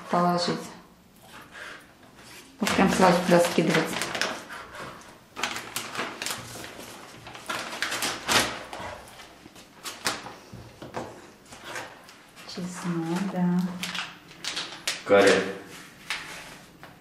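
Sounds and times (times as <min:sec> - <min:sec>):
plastic bag crinkling: 0:02.6 - 0:04.6, 0:05.4 - 0:10.4, 0:13.0 - 0:16.6.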